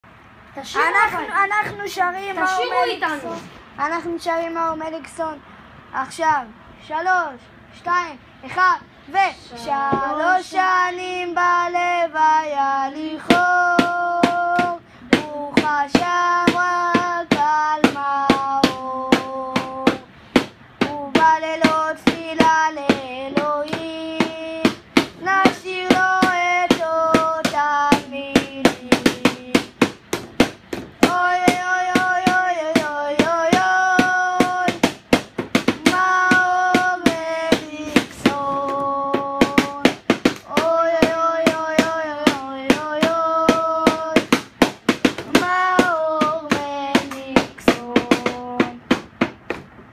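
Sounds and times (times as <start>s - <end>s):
voices singing: 0.6s - 49.0s
hand hits beat: 13.2s - 49.7s.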